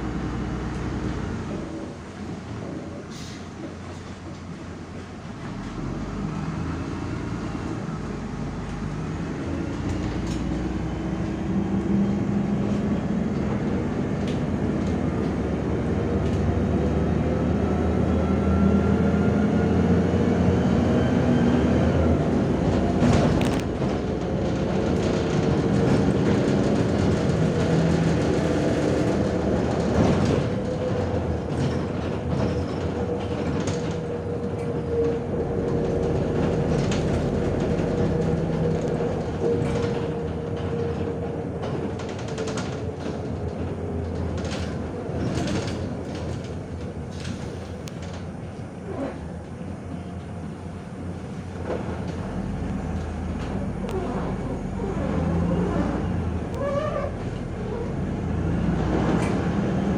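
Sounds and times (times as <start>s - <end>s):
bus engine whine: 0.0s - 59.9s
road rumble: 0.0s - 59.9s
bus body rattle: 22.2s - 59.9s.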